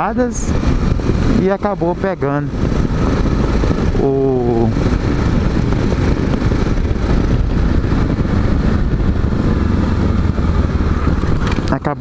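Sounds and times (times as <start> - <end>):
motorcycle engine running: 0.0 - 12.0
wind and road noise: 0.0 - 12.0.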